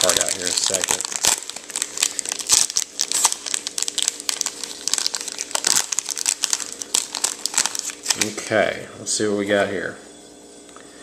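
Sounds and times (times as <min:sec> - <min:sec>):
wrapper crinkling: 0:00.0 - 0:08.6.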